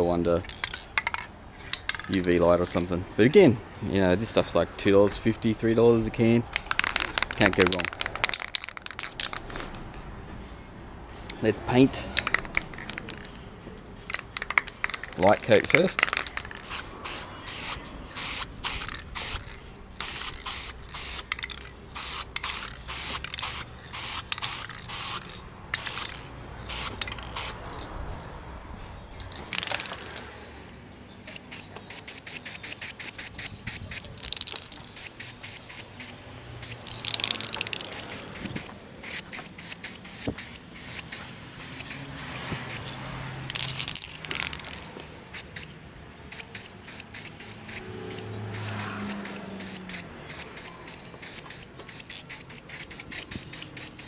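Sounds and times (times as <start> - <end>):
spray paint can hissing: 6.6 - 9.9, 12.2 - 13.3, 14.1 - 27.9, 29.4 - 30.4, 31.2 - 54.0.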